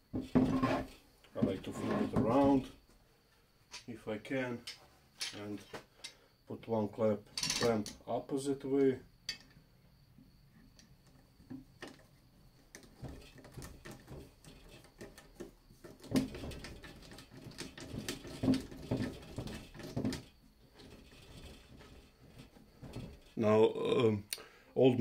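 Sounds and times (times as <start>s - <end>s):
knocks and squeaks: 0.0s - 2.8s, 10.2s - 23.4s
clamp screw clicking and creaking: 4.6s - 6.2s.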